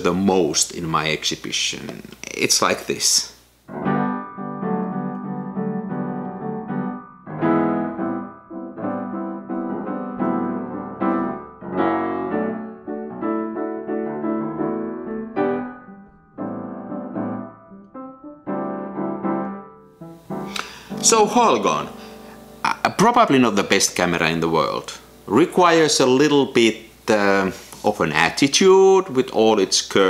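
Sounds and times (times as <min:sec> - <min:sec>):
slow piano chords: 0:03.7 - 0:27.1.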